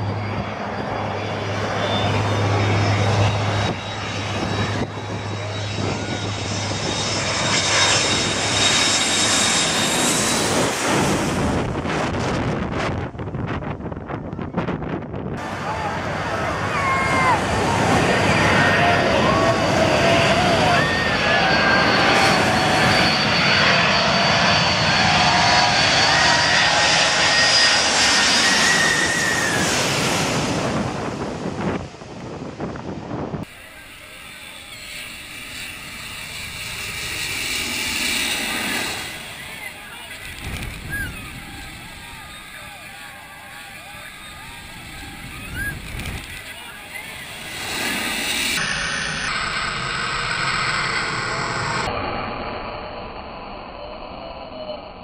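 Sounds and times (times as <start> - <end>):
jet engine rush: 0.0 - 55.0
jet turbine whine: 0.0 - 55.0.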